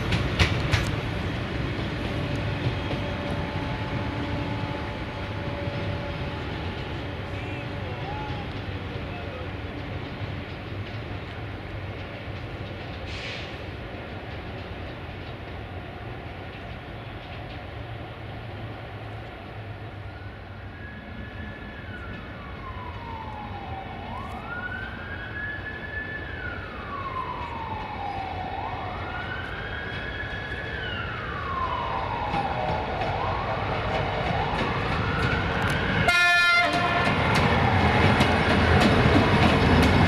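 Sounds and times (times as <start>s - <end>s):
emergency siren wailing: 20.0s - 38.8s.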